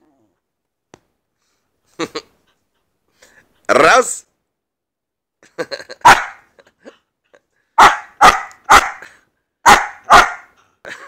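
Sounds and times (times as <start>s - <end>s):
dog barking: 6.0s - 6.5s, 7.8s - 10.6s.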